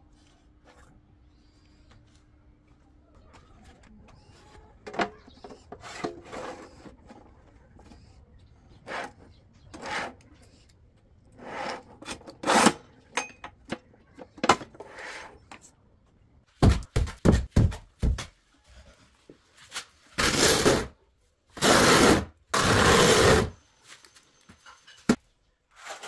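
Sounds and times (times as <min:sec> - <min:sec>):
tool scraping wood: 0:04.3 - 0:10.7, 0:11.3 - 0:12.8, 0:21.6 - 0:23.6.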